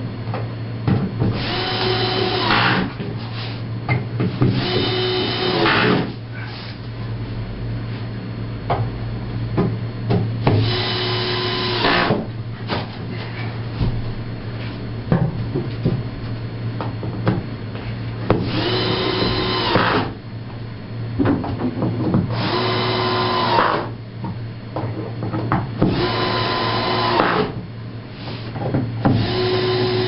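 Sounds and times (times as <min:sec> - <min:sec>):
small electric motor whirring: 0:18.4 - 0:20.0.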